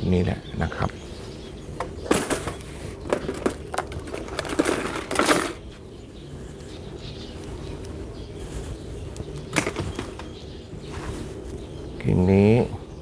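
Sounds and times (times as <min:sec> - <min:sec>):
hand tools clicking and clattering: 0:01.8 - 0:05.7, 0:09.5 - 0:10.3.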